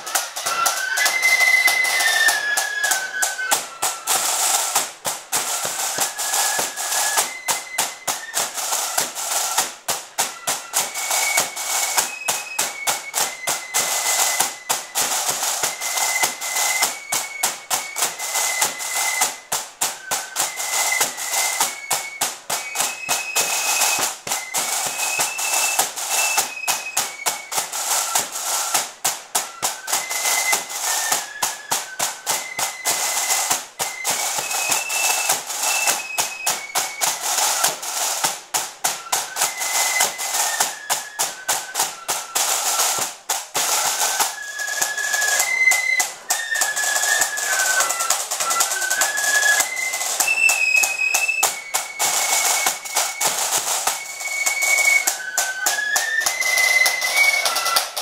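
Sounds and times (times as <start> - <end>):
flutes playing melody: 0.0 - 58.0
snare drums rolling: 0.0 - 58.0.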